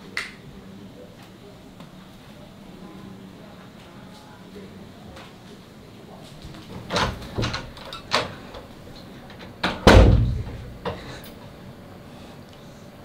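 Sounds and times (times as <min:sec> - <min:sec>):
knocks on a wooden door: 0:09.6 - 0:10.7.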